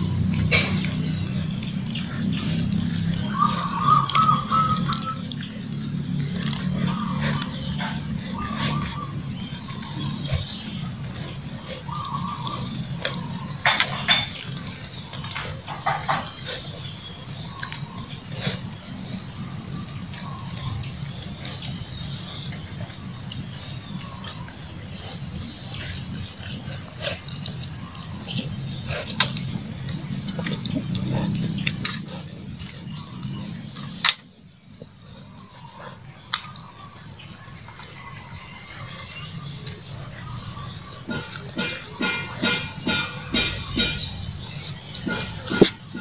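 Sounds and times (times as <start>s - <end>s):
puppies snuffling and chewing: 0.0s - 46.0s
teeth clicking against metal tray: 39.5s - 46.0s.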